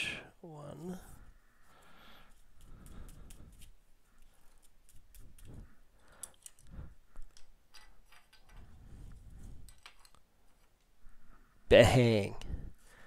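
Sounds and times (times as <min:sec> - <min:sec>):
plastic card sleeves rustling: 0:02.3 - 0:06.6.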